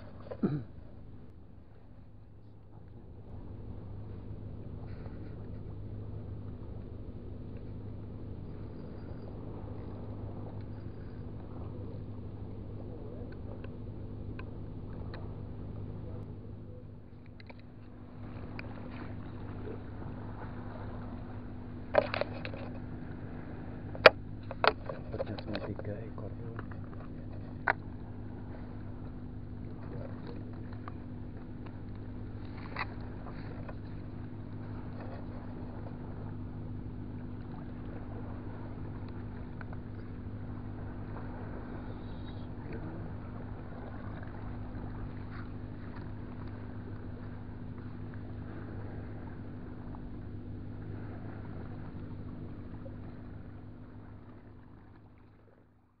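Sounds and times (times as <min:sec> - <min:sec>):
engine drone: 0:00.0 - 0:56.0
faint clicks: 0:13.2 - 0:15.3, 0:17.1 - 0:19.4, 0:39.0 - 0:40.2.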